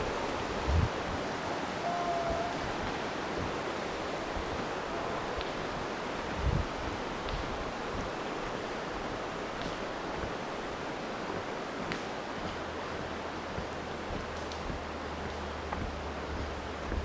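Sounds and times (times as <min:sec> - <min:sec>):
river rushing: 0:00.0 - 0:17.0
faint clicks: 0:13.6 - 0:17.0.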